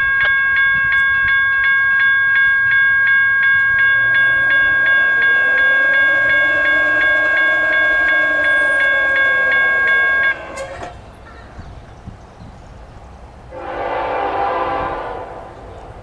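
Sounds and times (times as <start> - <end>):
crossing warning bell ringing: 0.0 - 11.4.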